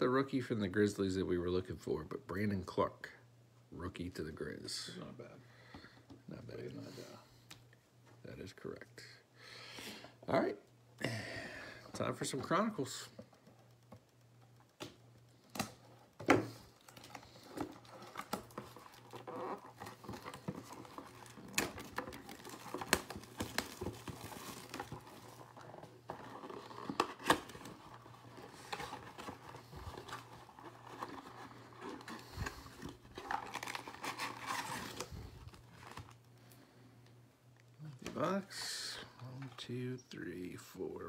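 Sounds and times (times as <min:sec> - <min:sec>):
sharp snaps and clicks: 0:13.3 - 0:16.2
shrink wrap crinkling and tearing: 0:15.6 - 0:36.6.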